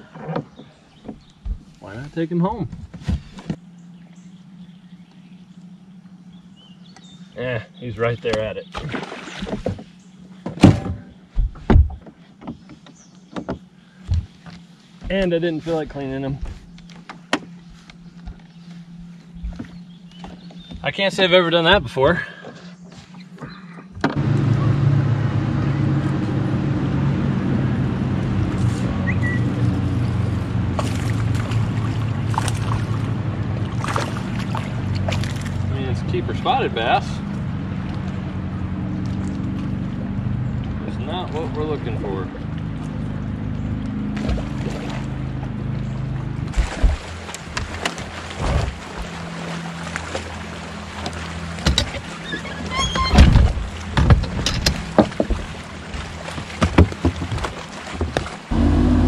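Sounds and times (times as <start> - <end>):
electric trolling motor humming: 3.6 - 7.9, 12.6 - 59.0
knocks and thumps on deck: 56.5 - 58.3.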